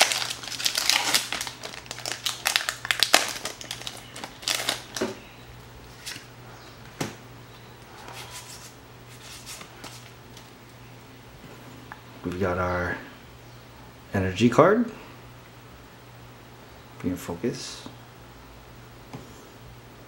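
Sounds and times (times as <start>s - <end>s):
foil wrapper tearing and crinkling: 0.0s - 5.2s.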